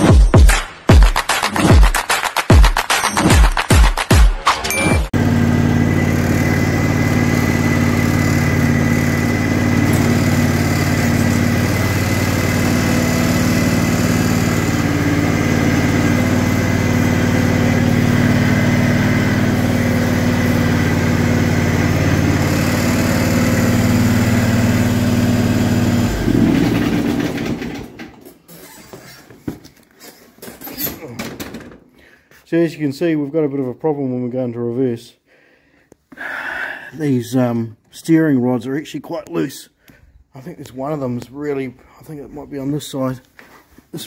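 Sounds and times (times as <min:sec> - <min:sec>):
ride-on mower engine running: 0:05.1 - 0:28.2.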